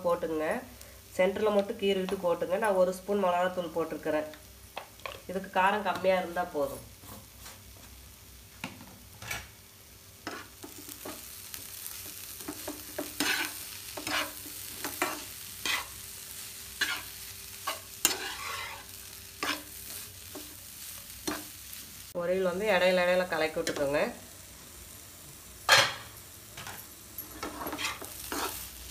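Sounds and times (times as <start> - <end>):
faint sizzle of frying: 0.0 - 28.9
spatula scraping a frying pan: 10.2 - 16.1, 16.7 - 21.7, 27.2 - 28.8.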